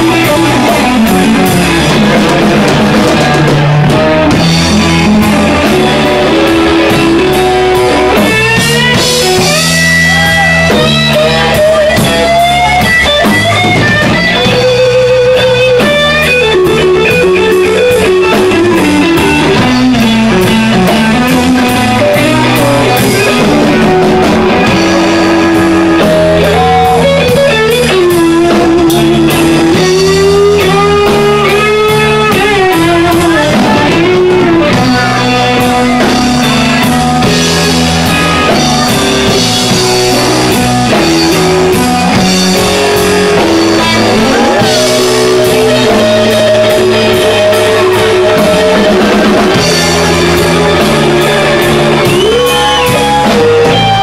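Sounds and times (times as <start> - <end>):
backing guitar: 0.0 - 54.0
drum kit: 0.0 - 54.0
electric guitar lead: 0.0 - 54.0.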